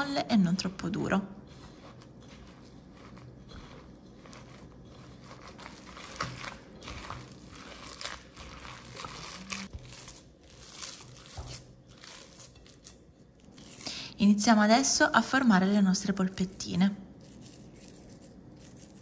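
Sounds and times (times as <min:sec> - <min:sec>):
hand squishing moist mixture: 0:00.8 - 0:13.9.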